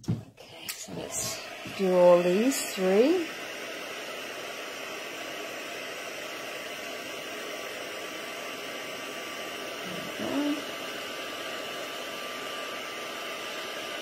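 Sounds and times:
heat tool blowing hot air: 0.6s - 14.0s
person humming: 9.8s - 10.7s.

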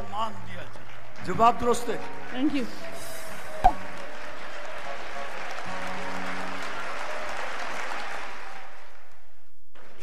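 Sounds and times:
audience applauding: 2.8s - 9.2s.

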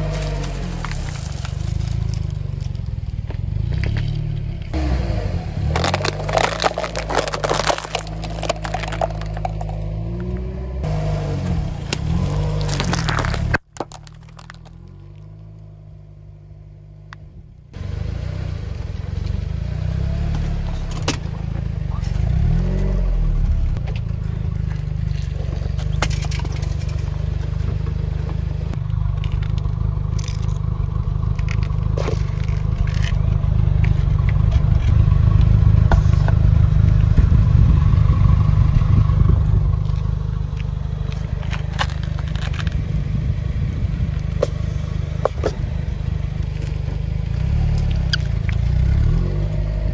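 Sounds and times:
tyre scrapes and crackles: 0.0s - 5.0s, 5.6s - 10.6s, 11.9s - 15.4s, 29.2s - 37.4s, 38.8s - 43.0s, 44.1s - 45.7s, 46.3s - 49.9s
car engine rumbling: 0.0s - 49.9s
tyre rolling over rubber balls: 5.7s - 10.4s, 12.0s - 15.2s.

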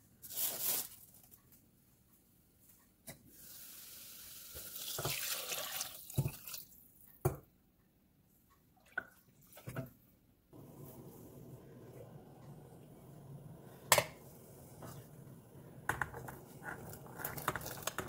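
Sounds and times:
liquid splashing pour: 4.7s - 6.7s.

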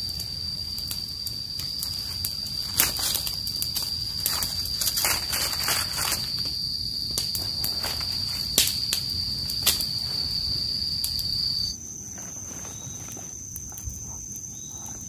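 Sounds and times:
sharp snaps: 0.8s - 9.9s
dry leaves crackling: 0.9s - 13.4s.

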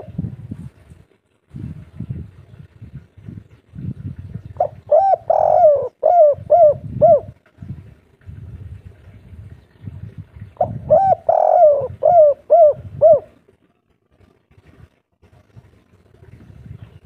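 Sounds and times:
dove cooing: 0.0s - 0.3s, 4.6s - 7.4s, 10.5s - 13.4s.

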